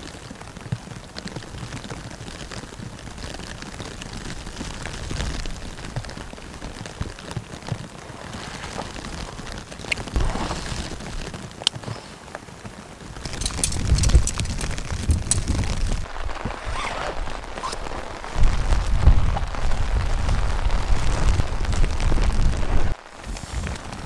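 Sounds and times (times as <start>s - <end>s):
steady rain: 0.0s - 24.0s
rucksack rustling: 13.2s - 18.0s.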